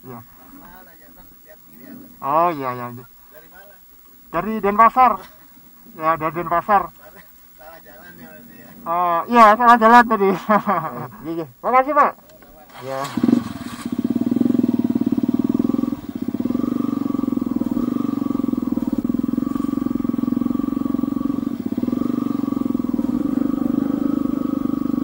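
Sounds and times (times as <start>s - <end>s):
small vehicle engine running: 12.7s - 25.0s.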